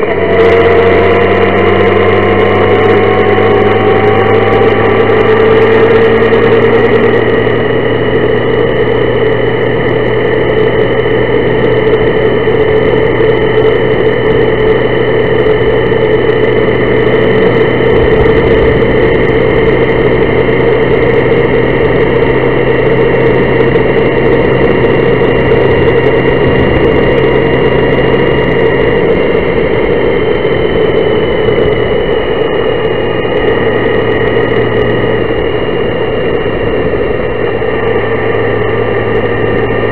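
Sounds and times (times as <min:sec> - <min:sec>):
low hum: 0:00.0 - 0:39.9
motorcycle engine cruising: 0:00.0 - 0:39.9
wind and road noise: 0:00.0 - 0:39.9.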